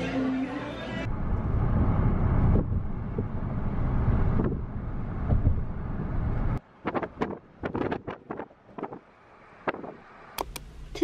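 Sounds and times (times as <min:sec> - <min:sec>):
low rumble by water: 0:01.1 - 0:06.6
wind buffeting microphone: 0:01.2 - 0:09.0.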